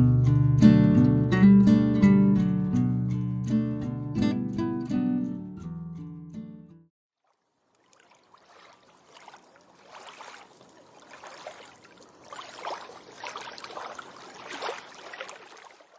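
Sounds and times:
small waves washing onto beach: 7.2s - 15.9s.

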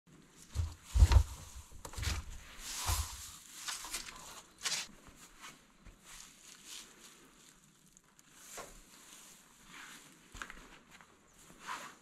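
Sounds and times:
footsteps on straw: 0.3s - 12.0s
dull knocks and scuffs: 0.5s - 4.9s.

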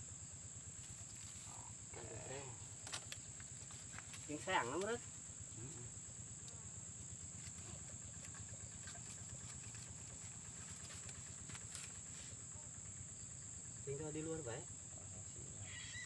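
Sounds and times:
high-pitched insect drone: 9.7s - 16.0s.

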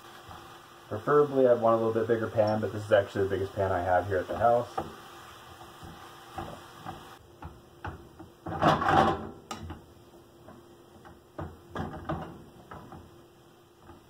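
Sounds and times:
wooden spoon scraping a skillet: 1.3s - 9.1s.

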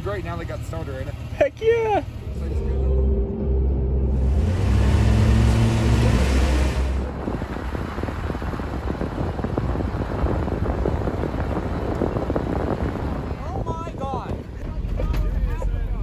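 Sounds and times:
car engine pulling away: 0.0s - 13.4s
tyres rumbling on snowy road: 0.0s - 16.0s
wind noise: 4.2s - 16.0s.

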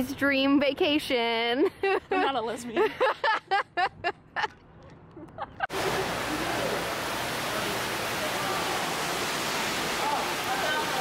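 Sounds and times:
waterfall rushing into pond: 5.7s - 11.0s.

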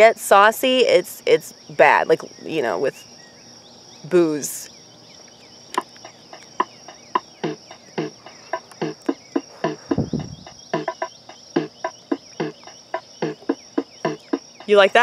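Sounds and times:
cricket trill: 0.0s - 15.0s
wind rush on microphone: 9.8s - 10.5s.

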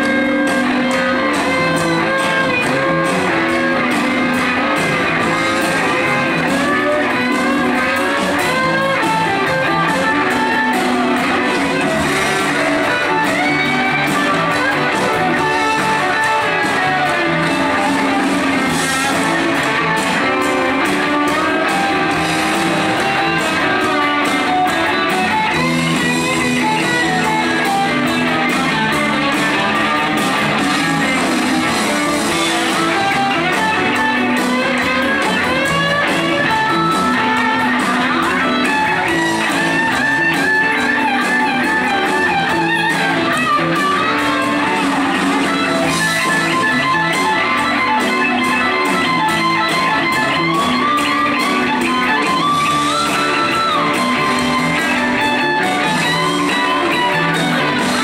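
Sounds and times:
bass guitar: 0.0s - 58.0s
drums: 0.0s - 58.0s
electric guitar lead line: 0.0s - 58.0s
electric guitars: 0.0s - 58.0s.

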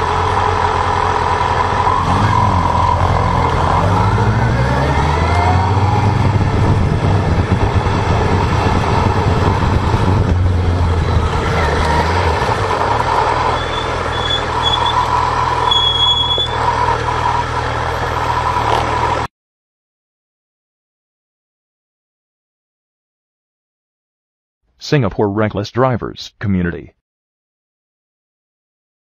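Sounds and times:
low rumble: 0.0s - 18.2s
motorcycle engine running: 0.0s - 19.3s
road and wind noise: 0.0s - 19.3s
short high beeps: 15.7s - 16.6s.

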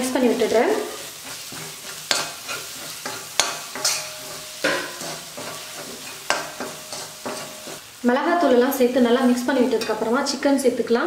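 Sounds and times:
paste sizzling in oil: 0.0s - 11.0s
spatula scraping a metal pan: 0.8s - 7.8s.

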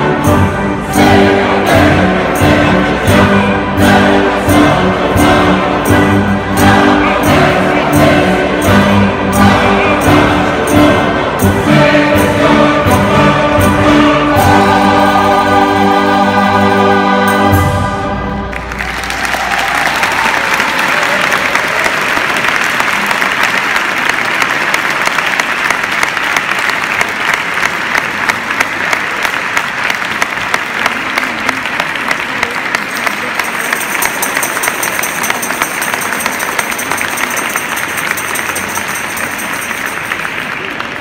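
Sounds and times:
audience applauding: 18.4s - 41.0s.

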